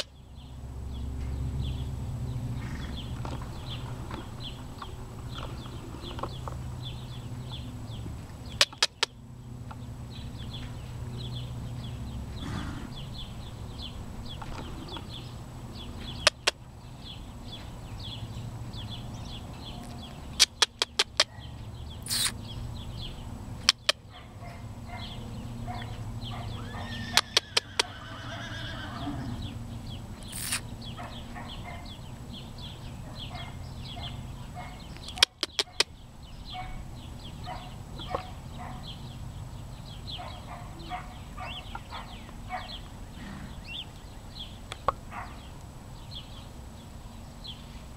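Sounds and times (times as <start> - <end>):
sharp clicks: 8.5 - 9.8, 16.1 - 16.6, 19.8 - 21.3, 22.0 - 22.4, 23.6 - 24.0, 30.2 - 30.7, 34.9 - 35.9
horse whinnying: 12.4 - 13.0, 26.6 - 29.4.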